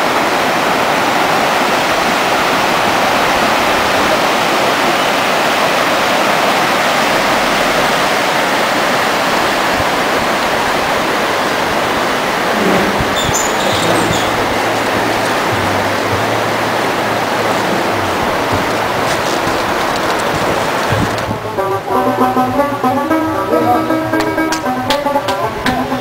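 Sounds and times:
river rushing over rocks: 0:00.0 - 0:21.6.

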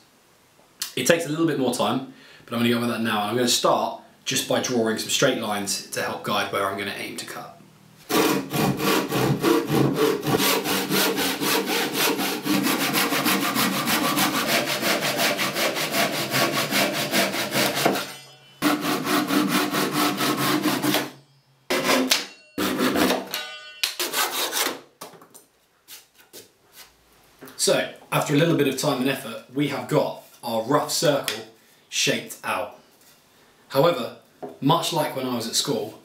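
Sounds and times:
handsaw cutting wood: 0:08.1 - 0:21.1, 0:21.7 - 0:23.2, 0:24.0 - 0:24.8.

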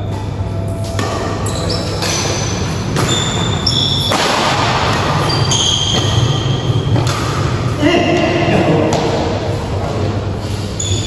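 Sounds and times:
rackets hitting shuttlecock: 0:00.8 - 0:09.4
shoes squeaking on floor: 0:01.4 - 0:04.2, 0:05.0 - 0:07.0, 0:10.4 - 0:11.0.

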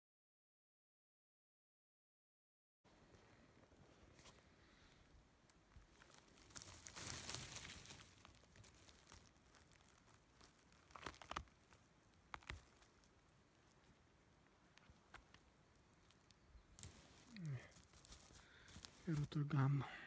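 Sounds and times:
pine needles crackling: 0:04.1 - 0:19.8.

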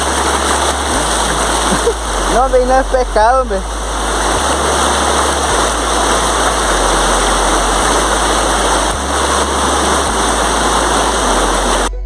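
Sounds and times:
river water rushing over rocks: 0:00.0 - 0:11.9.

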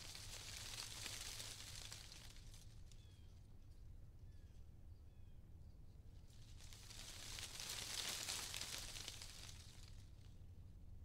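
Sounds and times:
wind rustling through leaves: 0:00.0 - 0:03.1, 0:06.2 - 0:10.4.

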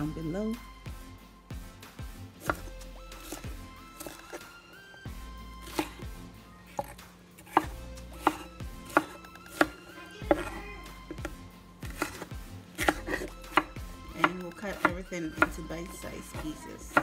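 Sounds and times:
soft background music: 0:00.0 - 0:17.0
knife chopping on wooden board: 0:02.3 - 0:04.4, 0:05.6 - 0:06.1, 0:06.7 - 0:17.0.

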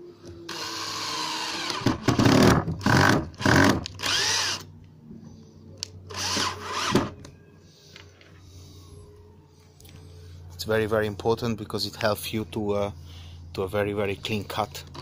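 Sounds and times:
cordless drill whirring: 0:00.5 - 0:04.7, 0:06.1 - 0:07.1.

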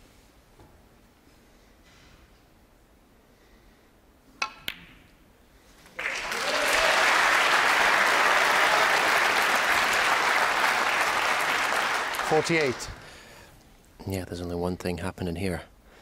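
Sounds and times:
crowd applauding: 0:06.0 - 0:13.2.

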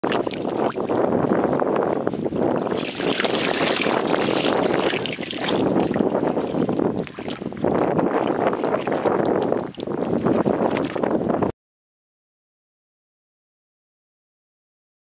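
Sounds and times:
muddy water splashing: 0:00.0 - 0:11.3
wind noise on microphone: 0:00.0 - 0:11.5
mud dripping: 0:02.6 - 0:11.0.

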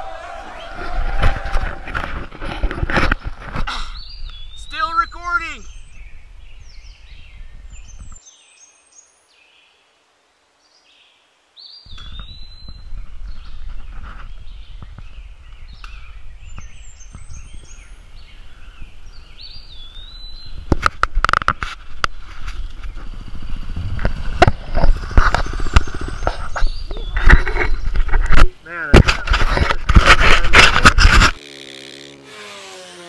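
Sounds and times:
wind rumbling on microphone: 0:00.0 - 0:04.6, 0:05.7 - 0:08.2, 0:11.9 - 0:31.4
birds chirping and trilling: 0:02.5 - 0:09.9, 0:10.6 - 0:28.8.

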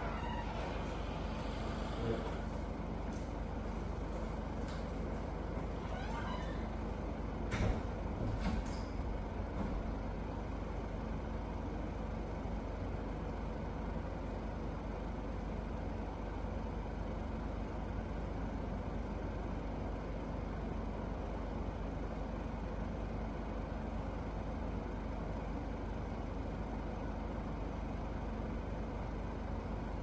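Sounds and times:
low hum: 0:00.0 - 0:07.3.

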